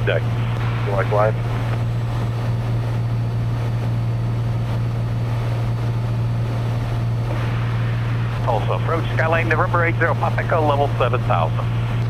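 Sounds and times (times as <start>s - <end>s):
aircraft engine droning: 0.0s - 12.0s.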